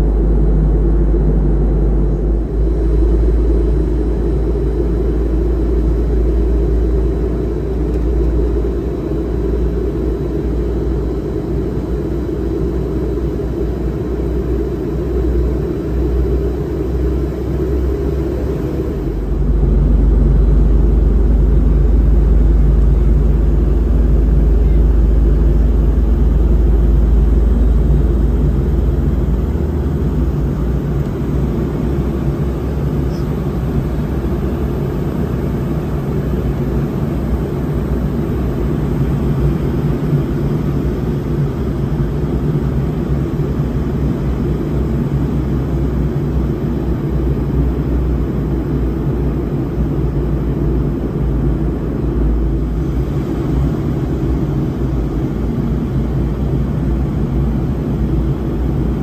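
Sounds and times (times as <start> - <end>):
deep rumble: 0.0 - 11.6, 13.5 - 42.3
airliner cabin drone: 0.0 - 59.0.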